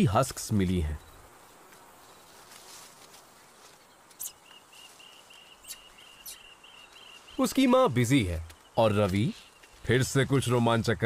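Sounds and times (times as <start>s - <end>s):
faint steady hiss: 0.0s - 11.0s
high thin pulsing call: 4.2s - 7.3s.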